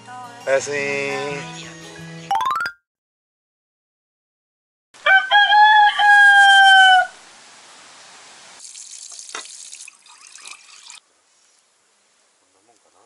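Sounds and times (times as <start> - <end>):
rooster crowing: 5.0 - 7.2
tap running into sink: 9.1 - 9.6.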